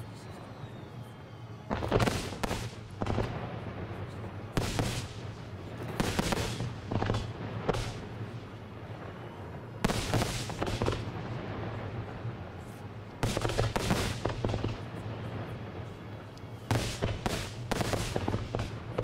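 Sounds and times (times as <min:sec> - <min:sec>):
fireworks crackling: 0:01.6 - 0:19.0
fireworks bursting in loud bangs: 0:01.7 - 0:03.4, 0:04.0 - 0:08.2, 0:09.8 - 0:11.2, 0:13.2 - 0:14.9, 0:16.7 - 0:19.0.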